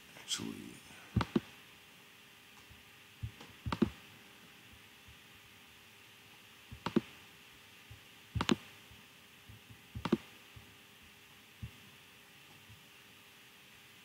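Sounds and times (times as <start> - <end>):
computer mouse clicking: 1.2 - 1.5, 2.6 - 4.0, 6.7 - 7.2, 8.4 - 8.7, 9.5 - 10.3.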